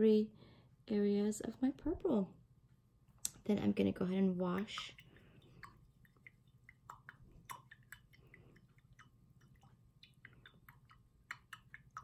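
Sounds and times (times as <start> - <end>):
water splashing in jar: 4.4 - 12.0.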